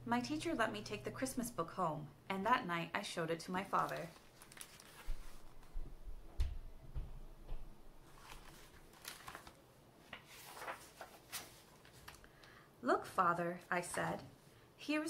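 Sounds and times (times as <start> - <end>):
book pages rustling: 3.7 - 5.8, 8.0 - 12.4.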